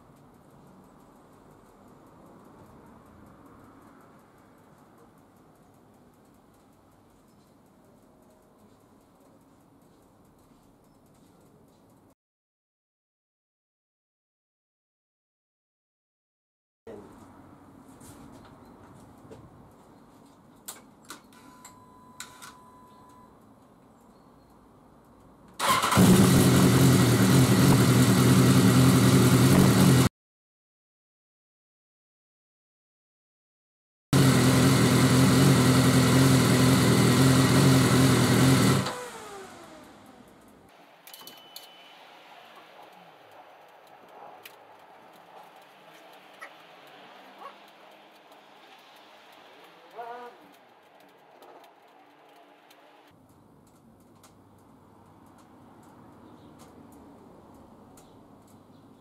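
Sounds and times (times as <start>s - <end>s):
faint fast high ticking: 0.0s - 12.1s
motorcycle engine starting and idling: 25.6s - 30.1s, 34.2s - 41.5s.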